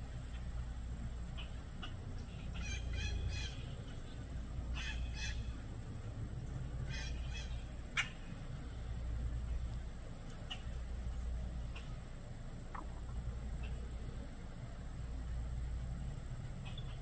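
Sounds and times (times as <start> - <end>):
bird calls: 1.2 - 5.6, 6.7 - 14.4, 16.5 - 17.0.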